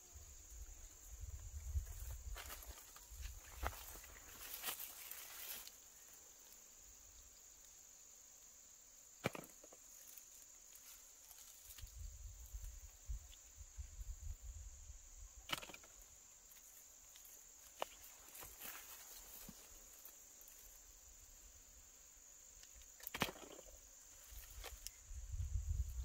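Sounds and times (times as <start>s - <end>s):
rustling in dry leaves: 1.6s - 6.6s, 16.6s - 20.8s.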